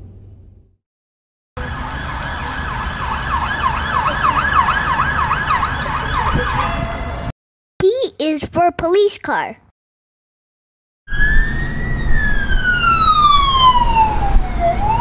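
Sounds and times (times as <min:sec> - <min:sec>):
police siren yelping: 0:01.6 - 0:07.3, 0:11.1 - 0:15.0
traffic noise: 0:01.6 - 0:07.3, 0:11.1 - 0:15.0.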